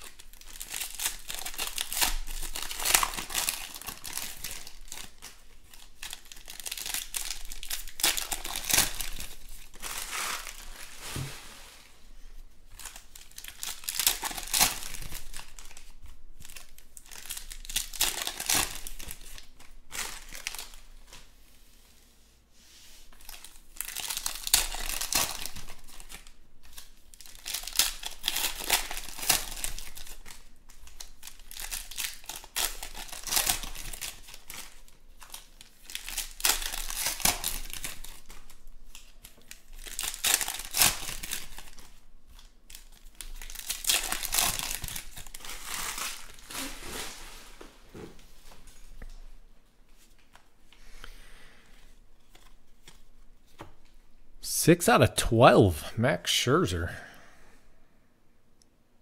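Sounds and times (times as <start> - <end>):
foil wrappers crinkling and tearing: 0.0 - 11.2, 12.7 - 21.2, 23.1 - 47.6.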